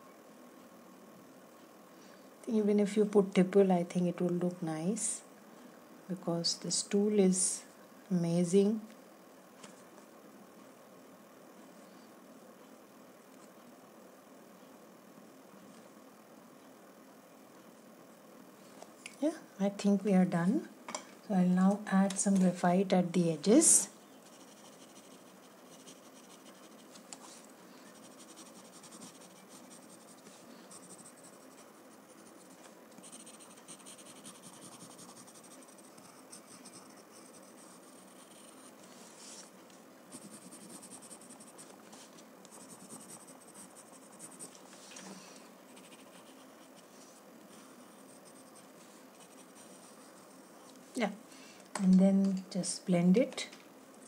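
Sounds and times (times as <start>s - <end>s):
pencil scratching on paper: 24.3s - 26.9s, 28.0s - 38.7s, 40.1s - 41.7s, 42.5s - 44.6s, 45.7s - 46.9s, 47.9s - 50.4s.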